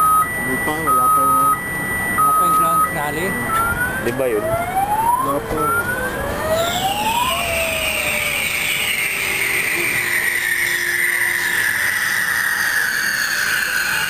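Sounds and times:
long falling whistling tone: 0:00.0 - 0:14.0
short rising firework whistles: 0:05.6 - 0:14.0.

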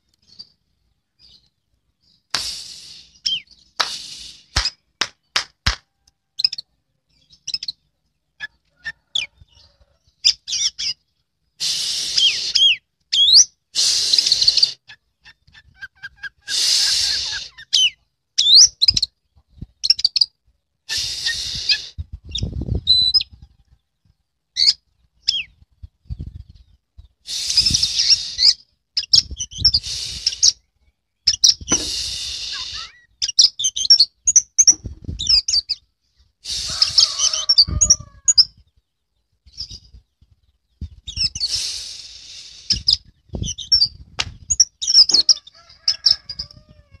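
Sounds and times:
bird whistled song: 0:01.2 - 0:04.8, 0:11.9 - 0:14.8, 0:16.2 - 0:19.1, 0:27.3 - 0:35.8, 0:40.8 - 0:45.4
harsh hissing bird notes: 0:02.3 - 0:05.8, 0:11.6 - 0:12.8, 0:13.7 - 0:14.9, 0:16.4 - 0:17.7, 0:20.9 - 0:22.1, 0:27.2 - 0:28.7, 0:29.3 - 0:30.6, 0:31.6 - 0:33.2, 0:36.4 - 0:38.1, 0:41.1 - 0:43.8.

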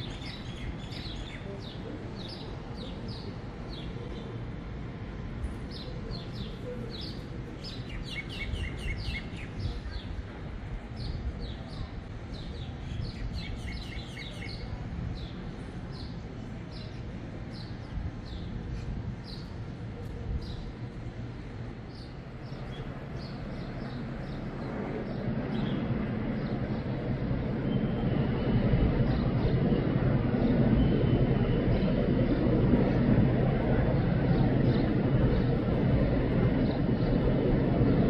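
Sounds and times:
small birds chirping: 0:00.0 - 0:04.4, 0:05.7 - 0:10.2, 0:10.9 - 0:20.9, 0:21.9 - 0:28.2
low city hum: 0:00.0 - 0:38.0.

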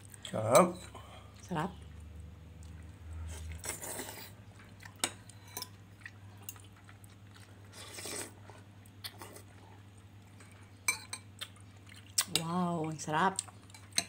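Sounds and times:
person slurping soup: 0:03.2 - 0:04.4, 0:07.7 - 0:09.5.

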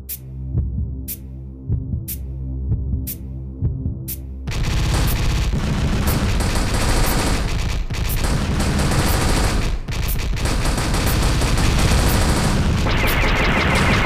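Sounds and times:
rapid machine-gun fire: 0:04.5 - 0:14.0.

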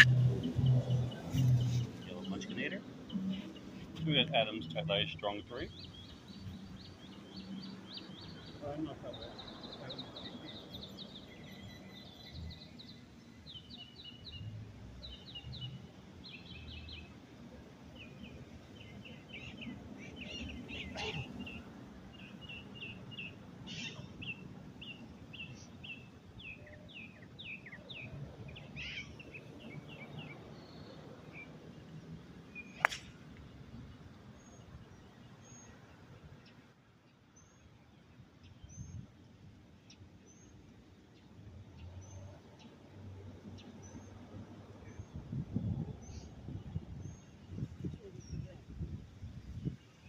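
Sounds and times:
birds chirping and singing: 0:00.0 - 0:17.2, 0:17.9 - 0:31.5, 0:32.5 - 0:33.1
golf club striking ball: 0:32.8 - 0:33.4.

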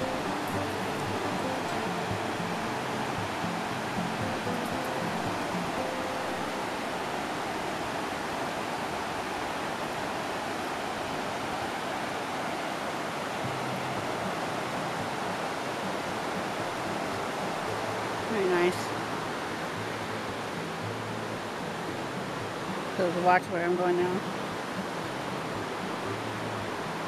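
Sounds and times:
creek rapids rushing over rocks: 0:00.0 - 0:27.0.

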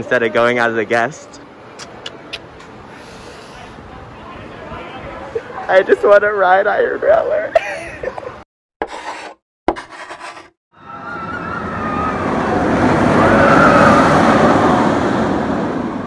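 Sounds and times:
roller coaster rushing rumble: 0:10.8 - 0:16.0.

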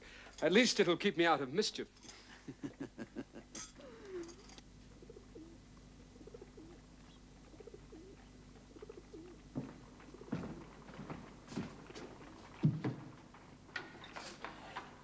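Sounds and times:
pigeons cooing: 0:03.8 - 0:11.0.

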